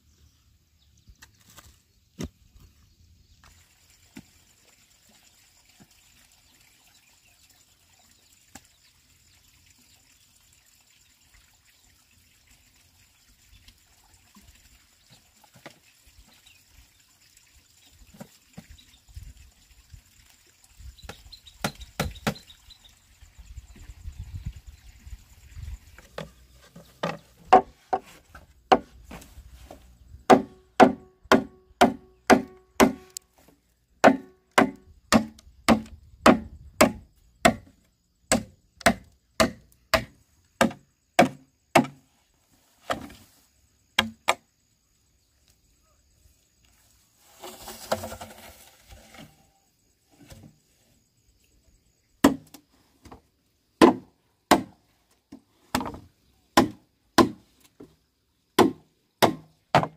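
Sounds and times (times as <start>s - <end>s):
blade chopping hollow bamboo: 27.0s - 29.3s, 30.2s - 33.2s, 34.0s - 42.1s, 44.0s - 44.4s, 52.2s - 52.6s, 53.8s - 54.8s, 55.7s - 56.0s, 56.6s - 57.5s, 58.6s - 59.9s
rustling scrape: 47.1s - 49.5s.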